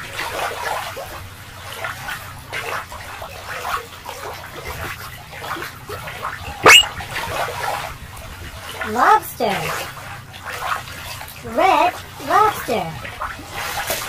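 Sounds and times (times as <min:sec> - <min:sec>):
brief sound rising in pitch: 0:06.6 - 0:06.9.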